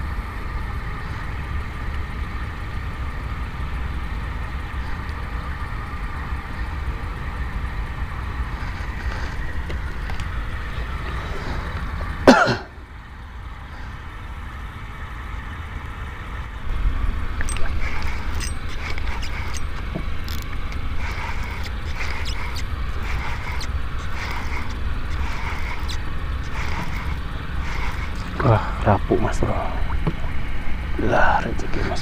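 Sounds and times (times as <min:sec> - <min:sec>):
faint steady hum: 0:00.0 - 0:32.0
steady low rumble: 0:00.0 - 0:32.0
man clearing his throat: 0:12.2 - 0:12.8.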